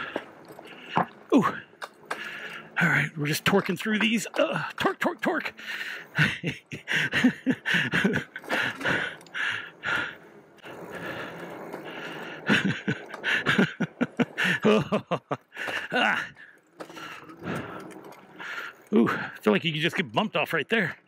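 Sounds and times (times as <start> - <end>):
bike knocking and rattling: 0.0 - 21.0
person breathing hard: 2.1 - 2.8, 5.6 - 13.6.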